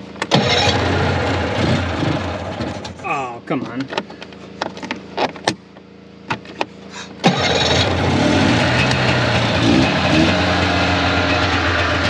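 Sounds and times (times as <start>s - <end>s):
snowmobile engine starting: 0.2s - 3.0s, 7.2s - 12.0s.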